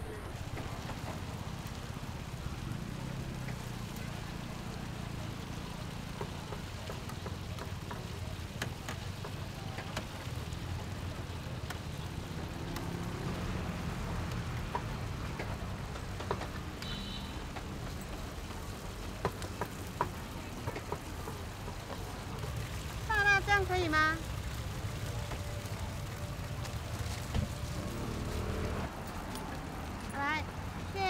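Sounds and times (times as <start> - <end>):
dumplings frying on griddle: 0.1 - 31.0.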